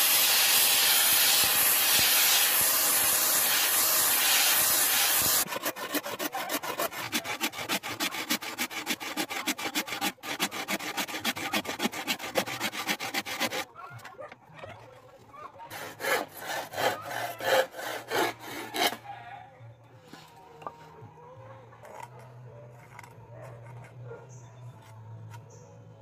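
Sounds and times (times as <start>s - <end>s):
handsaw cutting wood: 0.0s - 13.7s, 15.7s - 19.0s.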